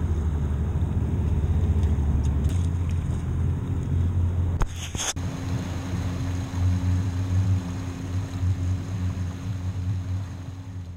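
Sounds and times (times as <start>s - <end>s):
outboard motor idling: 5.2s - 10.9s.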